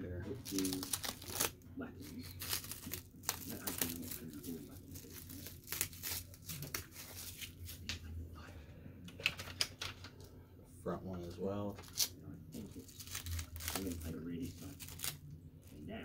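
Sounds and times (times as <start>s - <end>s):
plastic film peeling and crinkling: 0.3s - 7.9s, 11.7s - 16.0s.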